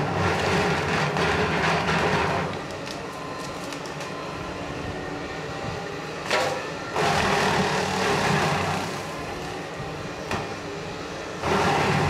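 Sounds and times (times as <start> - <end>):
brush mower shredding wood: 0.0 - 3.0, 6.3 - 9.7, 11.4 - 12.0
diesel engine under load: 0.0 - 12.0.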